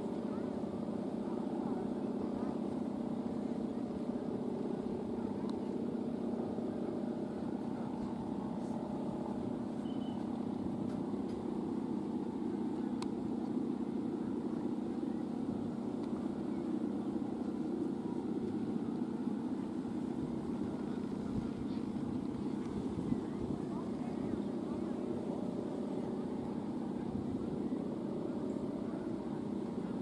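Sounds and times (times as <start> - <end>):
kite hummers droning: 0.0 - 30.0.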